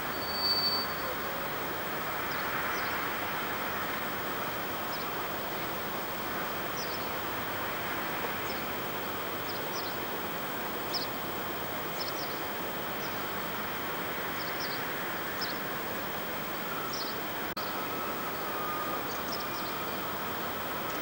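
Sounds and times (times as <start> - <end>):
steady background hiss: 0.0 - 21.0
small birds chirping: 11.9 - 13.3.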